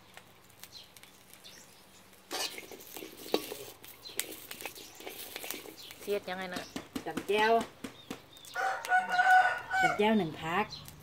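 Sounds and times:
light hiss of dry-roasting: 0:00.0 - 0:11.0
metal spoon scraping a wok: 0:02.2 - 0:06.1.

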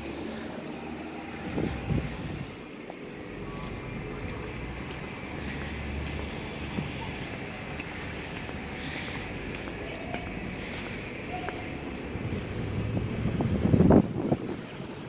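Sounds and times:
road traffic rumble: 0:00.0 - 0:15.0.

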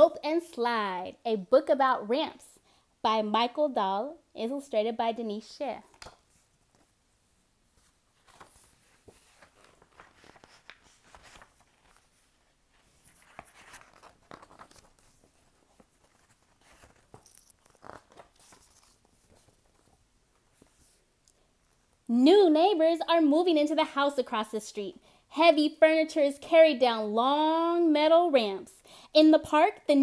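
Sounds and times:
paper pages rustling: 0:07.7 - 0:21.1.

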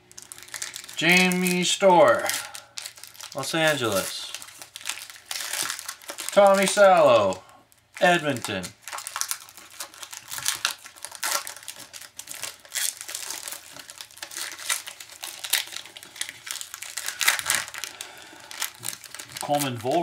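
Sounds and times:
foil wrappers crinkling: 0:00.1 - 0:20.0.

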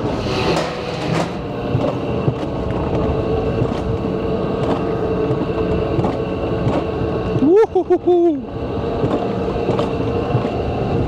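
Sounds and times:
sled rolling on rail: 0:00.0 - 0:11.0
steady whine: 0:00.0 - 0:11.0.

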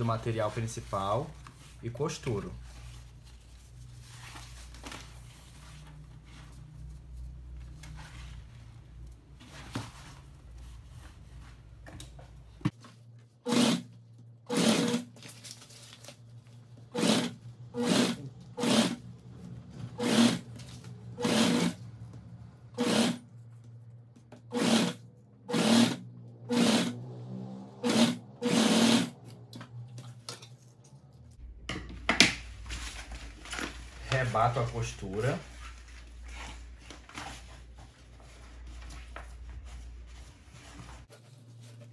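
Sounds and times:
sewing machine stitching: 0:13.4 - 0:13.9, 0:14.5 - 0:15.1, 0:16.9 - 0:19.0, 0:20.0 - 0:20.5, 0:21.2 - 0:21.8, 0:22.8 - 0:23.2, 0:24.5 - 0:27.0, 0:27.8 - 0:29.2.

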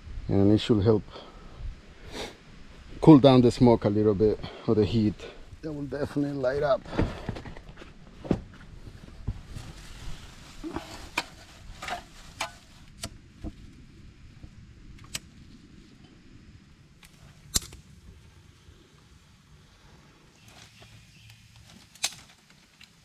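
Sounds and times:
fire crackling and popping: 0:05.2 - 0:23.0.

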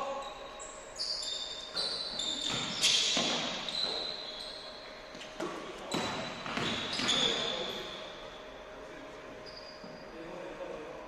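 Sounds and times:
sneakers squeaking on gym floor: 0:00.0 - 0:08.7, 0:09.4 - 0:10.3
basketball bouncing: 0:02.4 - 0:03.8, 0:05.4 - 0:07.3.

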